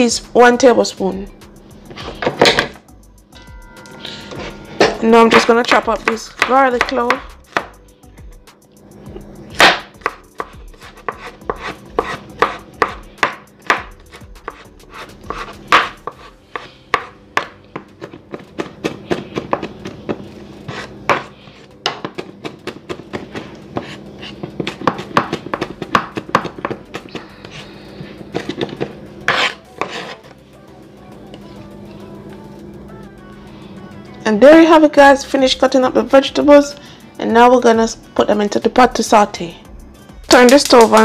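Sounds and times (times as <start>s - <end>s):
knife chopping on plastic board: 5.3s - 7.8s, 9.6s - 27.6s, 28.3s - 30.2s.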